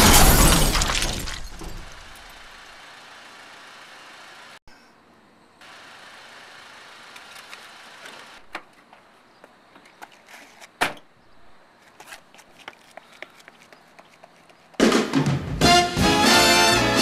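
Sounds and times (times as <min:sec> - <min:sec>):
truck cab background noise: 0:01.6 - 0:14.9.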